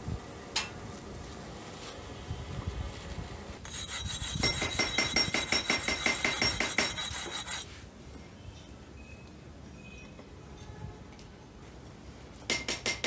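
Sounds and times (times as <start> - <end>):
brick rasping on hard surface: 3.7 - 7.7.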